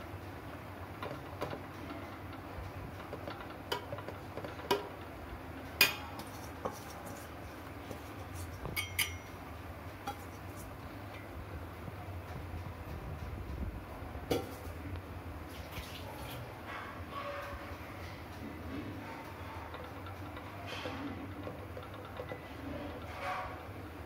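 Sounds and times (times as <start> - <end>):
spoon clinking against metal pot: 5.8 - 6.9, 8.8 - 9.4.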